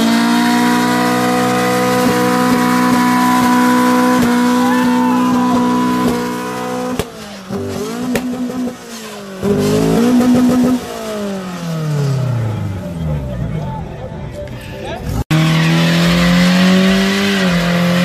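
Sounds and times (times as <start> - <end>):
car engine revving high: 0.0 - 13.5, 15.0 - 18.0.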